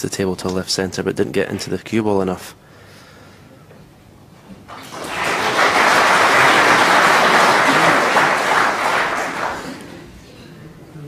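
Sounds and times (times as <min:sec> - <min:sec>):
audience applauding: 0:04.7 - 0:10.1.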